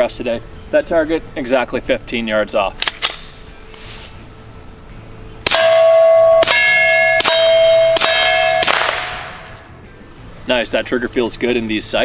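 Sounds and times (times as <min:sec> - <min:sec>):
suppressed pistol shots: 0:02.8 - 0:03.3, 0:05.4 - 0:06.6, 0:07.2 - 0:09.6
steel target ringing clang: 0:05.4 - 0:09.7.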